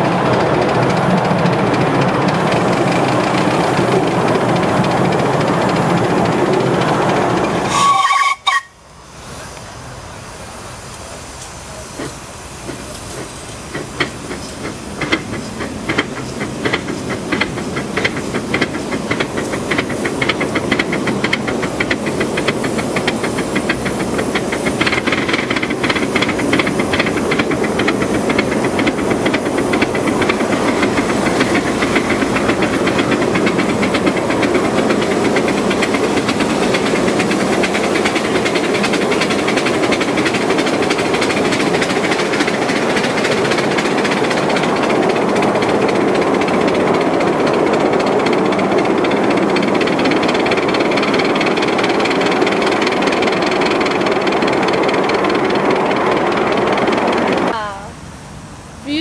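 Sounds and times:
steam hissing: 0:00.0 - 0:59.0
steam locomotive exhaust beats: 0:00.0 - 0:59.0
short steam whistle toot: 0:07.6 - 0:08.8.

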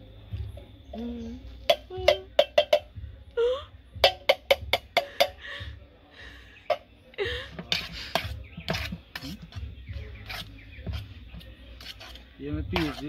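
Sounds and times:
tin can knocking on steel bowl: 0:01.7 - 0:02.9, 0:04.0 - 0:05.4, 0:12.7 - 0:13.0.

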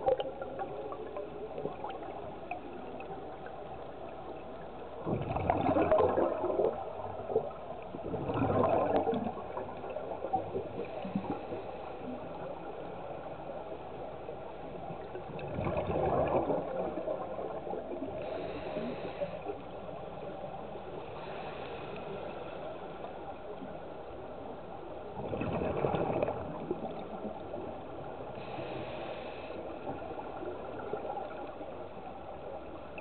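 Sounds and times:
gurgling exhaled bubbles underwater: 0:00.0 - 0:33.0
faint regulator hisses: 0:18.2 - 0:19.6, 0:21.1 - 0:22.9, 0:28.4 - 0:29.8.

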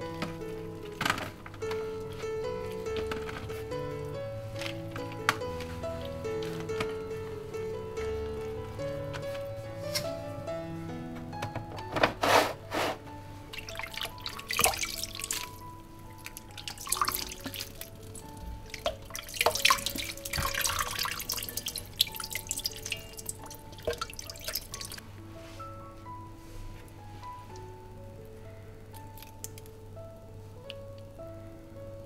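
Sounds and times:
soft background music: 0:00.0 - 0:32.0
water splashing and dripping: 0:13.6 - 0:25.0.

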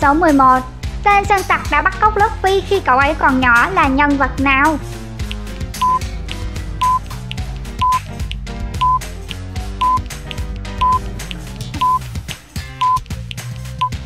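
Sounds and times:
background music with bass line: 0:00.0 - 0:14.0
countdown timer beeps: 0:05.8 - 0:06.1, 0:06.8 - 0:07.0, 0:07.8 - 0:08.0, 0:08.8 - 0:09.1, 0:09.8 - 0:10.0, 0:10.8 - 0:11.1, 0:11.8 - 0:12.1, 0:12.7 - 0:13.0, 0:13.8 - 0:14.0.

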